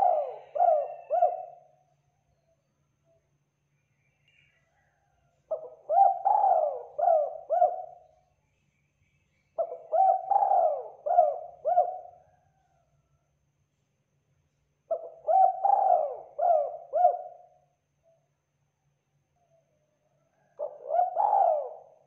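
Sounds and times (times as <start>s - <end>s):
dove cooing: 0.0s - 1.8s, 5.5s - 8.1s, 9.6s - 12.6s, 14.9s - 17.6s, 20.4s - 22.0s.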